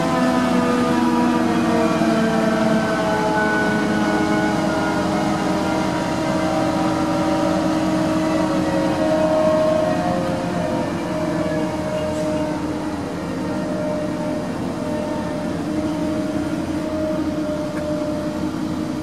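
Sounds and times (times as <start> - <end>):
crane diesel engine and hydraulics: 0.0 - 19.0.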